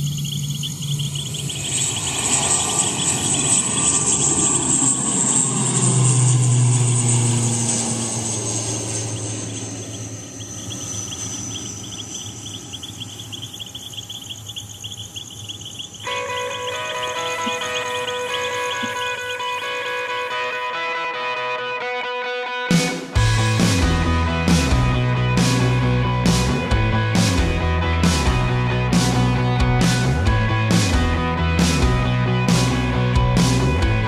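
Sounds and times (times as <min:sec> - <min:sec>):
insects chirping: 0:00.0 - 0:04.6, 0:08.2 - 0:20.4
aircraft engine passing: 0:00.0 - 0:34.0
music: 0:16.0 - 0:34.0.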